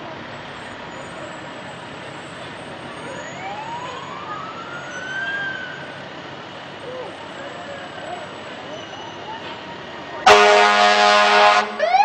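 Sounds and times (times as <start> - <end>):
vehicle and street noise: 0.0 - 12.0
emergency siren winding up: 11.8 - 12.0.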